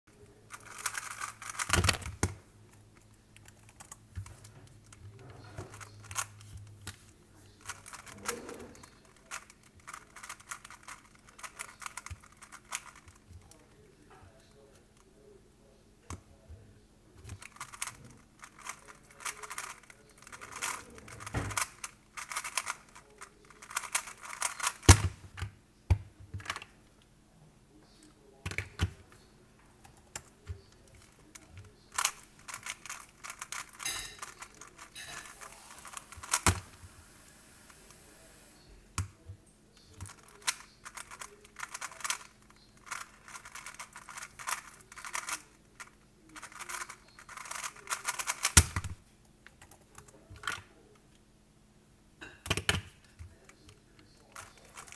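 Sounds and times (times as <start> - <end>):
faint steady hum: 0.1 - 54.9
speed cube clicking: 0.6 - 2.3, 9.2 - 13.2, 17.4 - 22.9, 23.6 - 25.0, 31.9 - 33.8, 40.0 - 45.4, 46.4 - 48.9.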